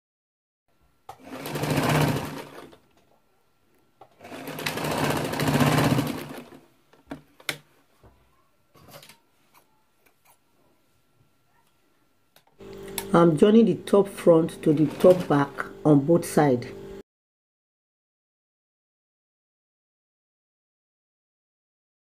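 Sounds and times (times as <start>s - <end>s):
sewing machine stitching: 1.1s - 2.8s, 4.1s - 6.6s, 14.5s - 15.6s.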